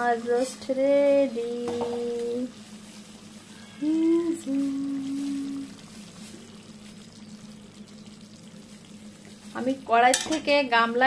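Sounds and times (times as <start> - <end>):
low steady hum: 0.0 - 11.0
woman humming: 3.6 - 5.8.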